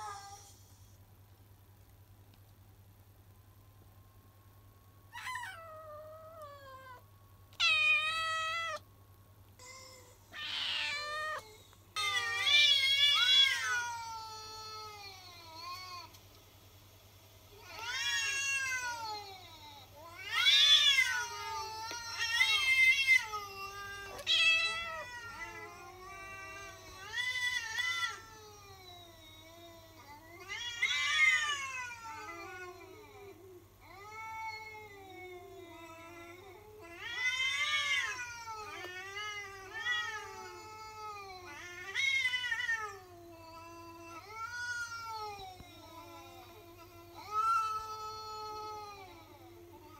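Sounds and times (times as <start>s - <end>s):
cats yowling: 0.0s - 0.5s, 5.1s - 7.0s, 7.6s - 8.8s, 9.6s - 16.0s, 17.6s - 49.9s.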